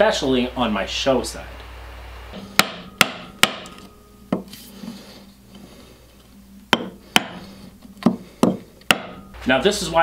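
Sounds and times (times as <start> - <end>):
mallet knocking wood chisel: 2.6 - 4.5, 6.7 - 7.4, 8.0 - 9.2.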